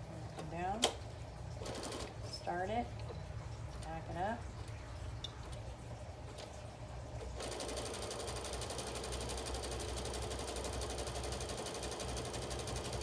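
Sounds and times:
electric sewing machine stitching: 7.4 - 13.0.

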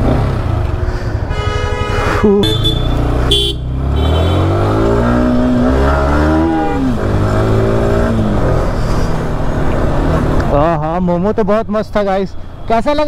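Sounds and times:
motorcycle engine accelerating: 0.0 - 0.9, 2.2 - 10.4
vehicle horn toots: 1.3 - 4.8, 6.2 - 7.0.

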